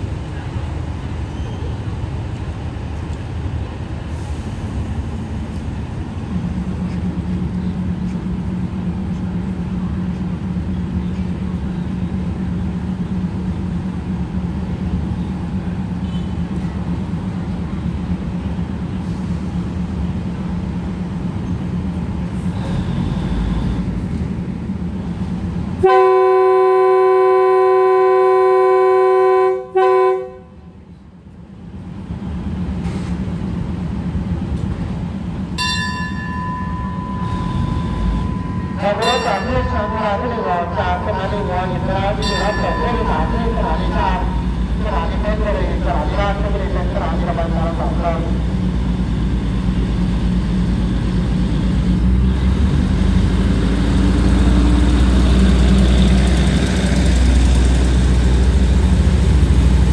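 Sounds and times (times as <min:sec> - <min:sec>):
train horn: 0:25.8 - 0:30.8
diesel engine idling: 0:36.2 - 0:59.9.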